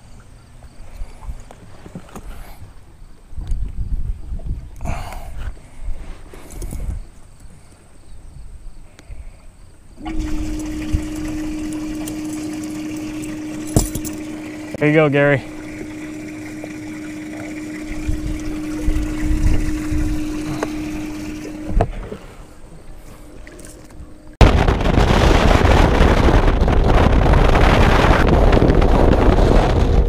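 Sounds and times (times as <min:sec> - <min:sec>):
wind on microphone: 0:00.8 - 0:07.2, 0:10.0 - 0:14.8, 0:15.4 - 0:30.0
low hum: 0:10.0 - 0:30.0
motorboat running fast: 0:10.0 - 0:30.0.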